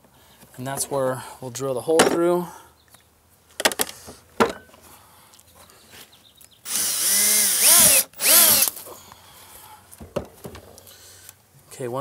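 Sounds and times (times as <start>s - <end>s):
cordless drill boring through plastic: 6.7s - 8.8s.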